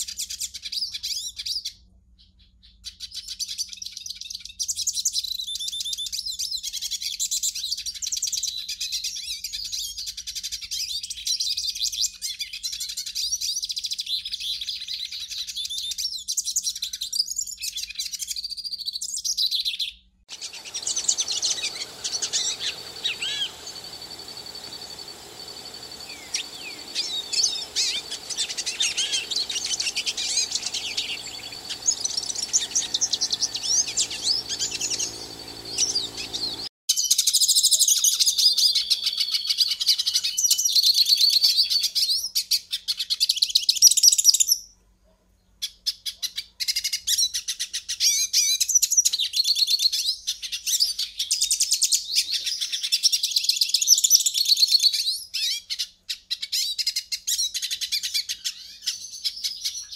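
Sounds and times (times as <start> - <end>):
finch singing chirps and trills: 20.3 - 36.7.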